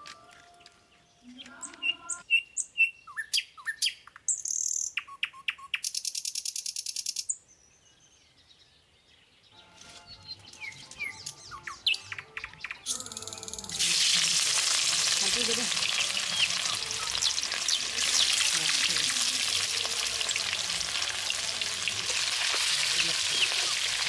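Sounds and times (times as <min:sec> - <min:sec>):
birds chirping: 0:00.0 - 0:13.8, 0:15.1 - 0:24.0
hot oil sizzling: 0:13.5 - 0:24.0.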